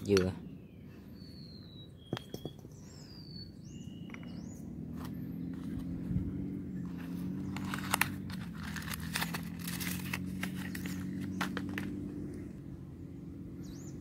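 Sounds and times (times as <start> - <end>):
steady low hum: 0.0 - 14.0
cardboard box and paper crinkling: 7.0 - 11.8.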